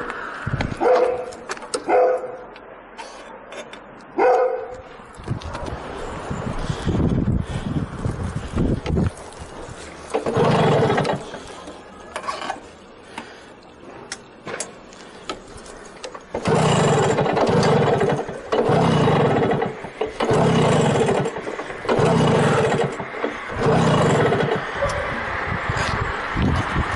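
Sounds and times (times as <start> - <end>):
moped engine sputtering: 6.6 - 11.9, 16.2 - 25.9.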